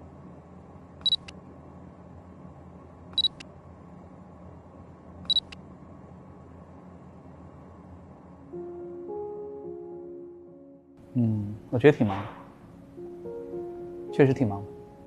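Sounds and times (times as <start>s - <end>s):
faint steady hum: 0.0s - 15.0s
camera beep: 1.0s - 1.3s, 3.2s - 3.4s, 5.3s - 5.6s.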